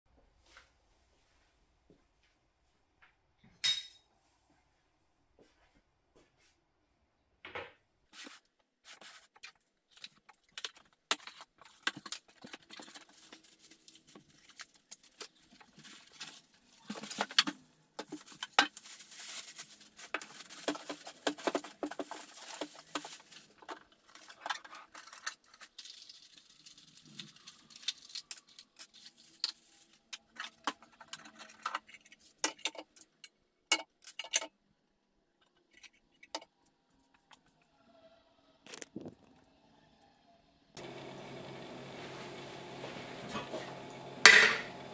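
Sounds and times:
cardboard rustling: 0:08.2 - 0:26.3
plastic bag crinkling: 0:09.1 - 0:32.4.

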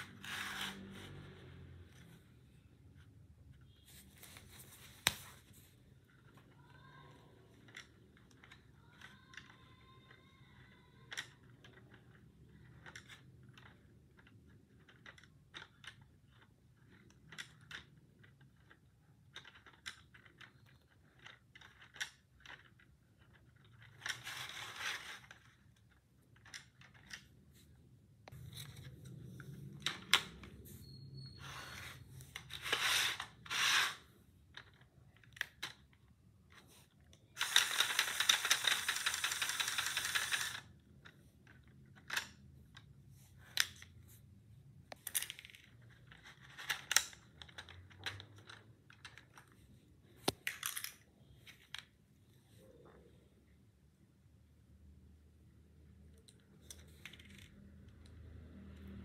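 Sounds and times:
plastic bricks clicking and rattling: 0:06.0 - 0:27.4, 0:32.3 - 0:43.9, 0:44.9 - 0:52.0.

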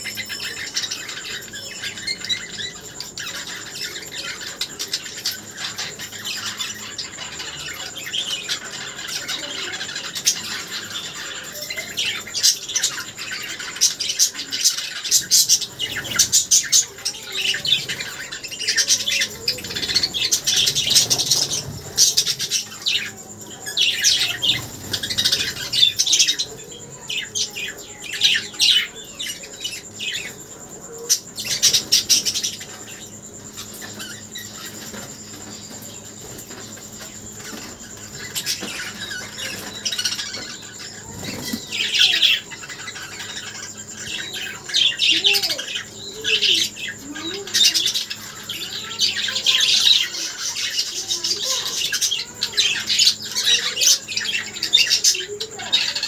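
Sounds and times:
budgerigars chirping and squawking: 0:00.0 - 0:56.0.

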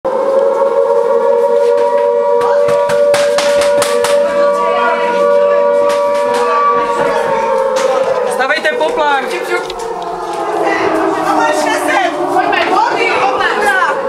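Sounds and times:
air-raid siren wailing: 0:00.1 - 0:14.0
sharp knocks and bangs: 0:01.8 - 0:04.5, 0:05.7 - 0:11.0.

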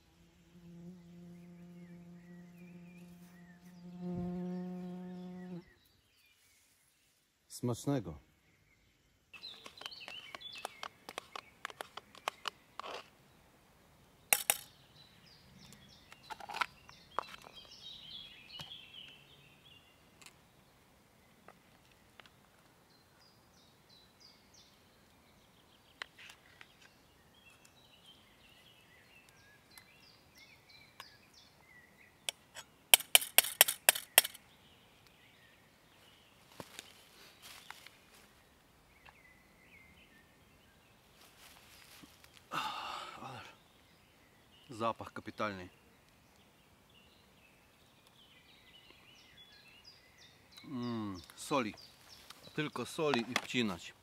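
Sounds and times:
birds chirping: 0:00.0 - 0:54.0
sharp clicks and clinks: 0:33.0 - 0:34.4.

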